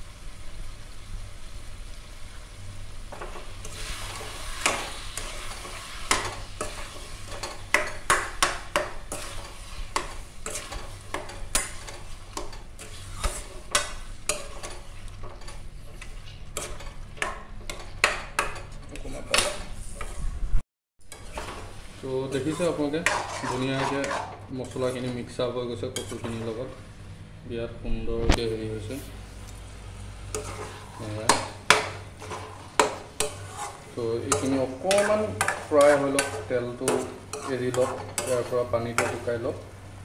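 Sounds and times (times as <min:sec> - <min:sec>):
oil frying sizzle: 0:00.0 - 0:20.0, 0:21.0 - 0:23.4, 0:29.2 - 0:40.0
metal spatula scraping pan: 0:03.6 - 0:17.0, 0:17.6 - 0:20.2, 0:21.1 - 0:25.3, 0:30.3 - 0:39.5.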